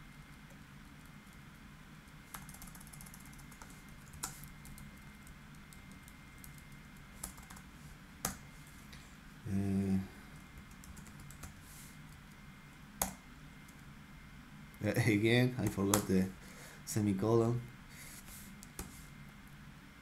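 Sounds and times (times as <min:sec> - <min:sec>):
typing on computer keyboard: 0:02.3 - 0:07.6, 0:10.6 - 0:11.6.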